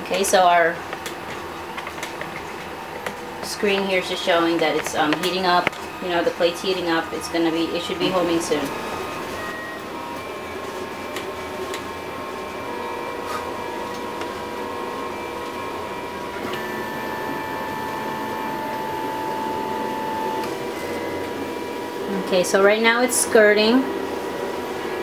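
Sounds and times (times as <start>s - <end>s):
printer whir: 7.8s - 22.1s
stepper motors whining: 16.2s - 21.4s.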